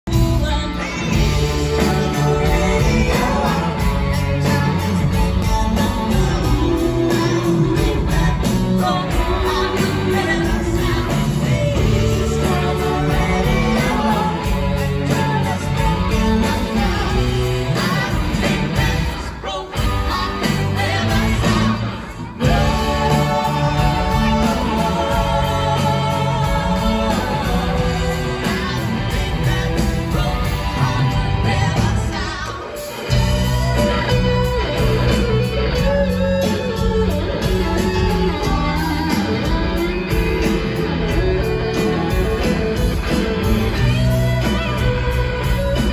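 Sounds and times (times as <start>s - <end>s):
live pop-rock band: 0.0s - 45.9s
woman singing lead vocal: 0.1s - 36.6s.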